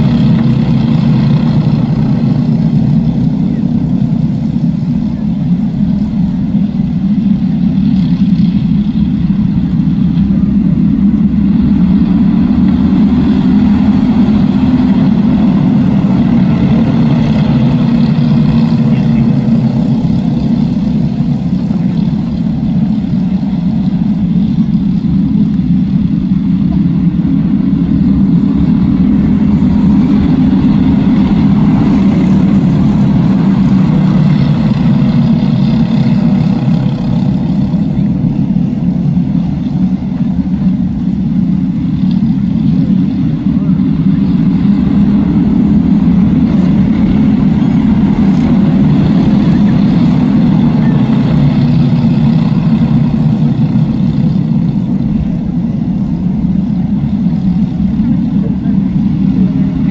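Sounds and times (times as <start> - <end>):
racing kart engines droning: 0.0 - 59.9.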